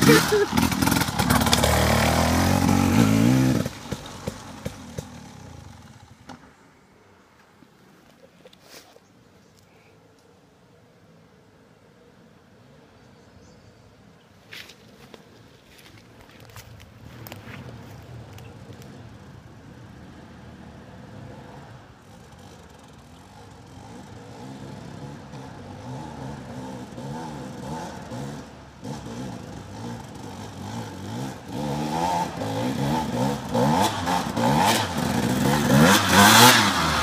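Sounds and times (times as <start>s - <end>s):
dirt bike engine revving: 0.0s - 6.4s, 21.4s - 37.0s.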